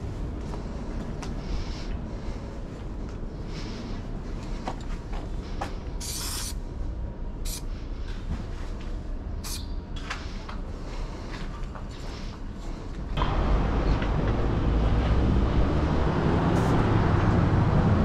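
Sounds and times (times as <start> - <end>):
low background rumble: 0.0 - 18.0
spray paint can hissing: 6.0 - 6.6, 9.5 - 9.7.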